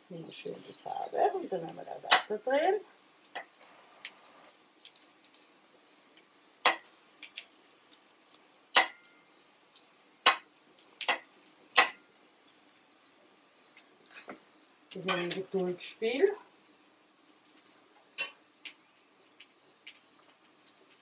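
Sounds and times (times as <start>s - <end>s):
cricket chirping: 0.1s - 21.0s
spatula scraping a grill pan: 14.1s - 14.4s.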